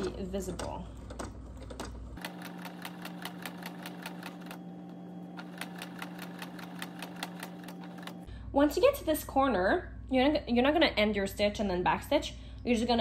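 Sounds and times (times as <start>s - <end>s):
sewing machine motor hum: 1.1s - 8.3s.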